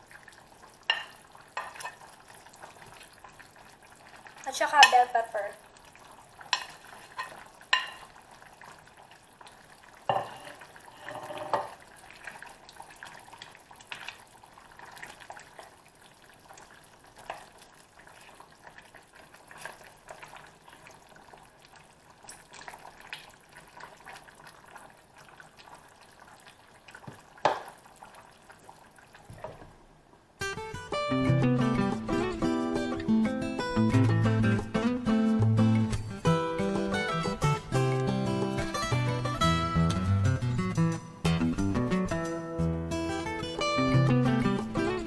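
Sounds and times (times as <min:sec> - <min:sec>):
stew simmering and sizzling: 0:00.0 - 0:45.0
spatula scraping a pan: 0:10.1 - 0:11.8.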